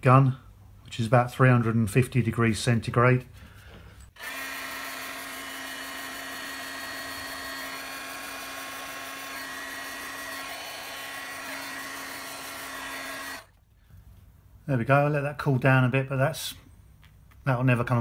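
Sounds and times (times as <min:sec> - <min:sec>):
electric heat gun running: 0:04.2 - 0:13.6.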